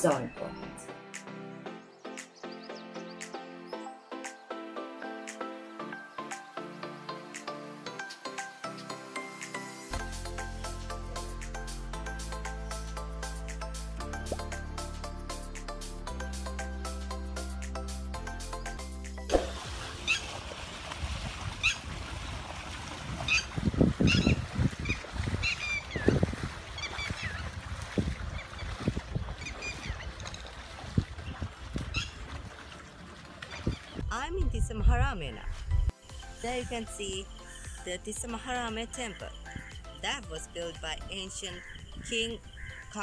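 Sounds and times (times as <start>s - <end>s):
birds chirping: 0.0s - 9.8s, 20.0s - 20.3s, 23.3s - 27.6s, 28.3s - 30.4s, 31.2s - 32.3s, 33.4s - 34.1s, 37.4s - 43.0s
water buffaloes splashing: 19.3s - 34.0s.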